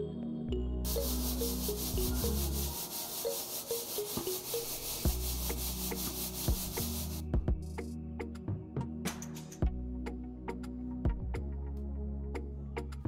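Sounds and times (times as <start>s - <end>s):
flour swishing in metal basin: 0.9s - 7.2s.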